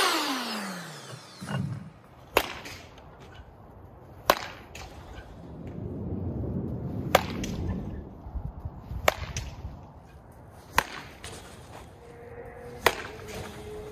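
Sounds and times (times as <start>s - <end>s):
bat cracking against ball: 1.9s - 3.5s, 4.1s - 5.2s, 7.1s - 7.7s, 9.0s - 11.8s, 12.7s - 13.9s.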